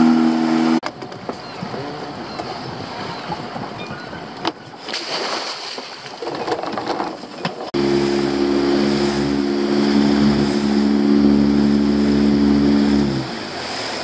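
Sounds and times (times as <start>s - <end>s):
outboard motor running: 0.0s - 1.0s, 7.6s - 14.0s
water rushing past boat hull: 0.0s - 14.0s.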